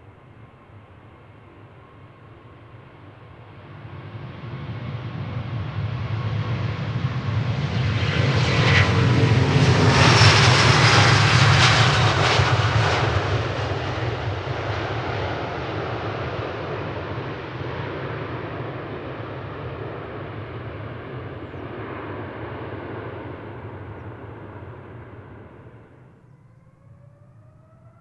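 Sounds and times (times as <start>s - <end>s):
jet airliner roaring past: 0.0s - 28.0s
jet engine whine: 0.0s - 28.0s.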